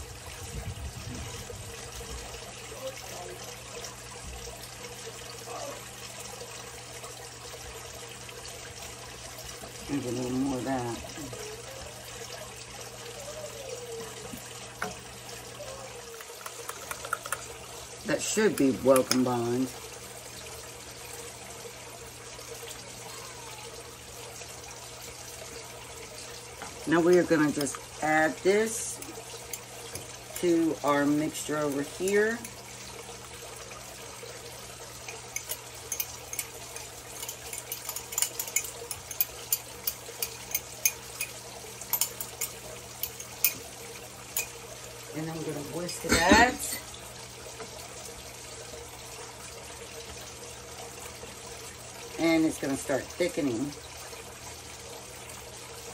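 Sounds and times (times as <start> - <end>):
liquid pouring into saucepan: 13.6 - 55.9
whisk clinking on saucepan: 35.0 - 43.7.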